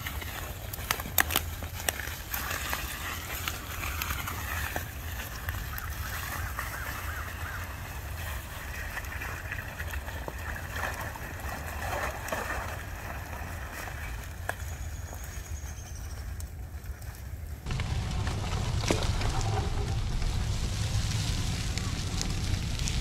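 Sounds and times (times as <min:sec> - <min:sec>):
tires sloshing through slush: 0:00.0 - 0:14.9, 0:17.6 - 0:23.0
steady low rumble: 0:17.7 - 0:23.0.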